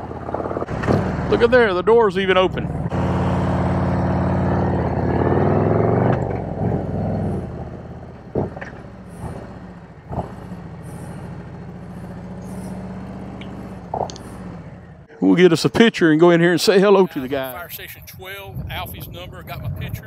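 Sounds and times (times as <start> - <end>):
motorcycle engine: 0.0 - 15.9.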